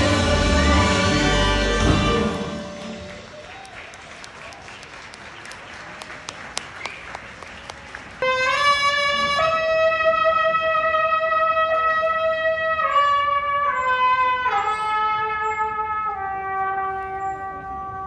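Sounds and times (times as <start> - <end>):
brass band playing: 0.0 - 3.3, 8.2 - 18.0
crowd noise: 0.0 - 12.2
people clapping: 2.8 - 8.6.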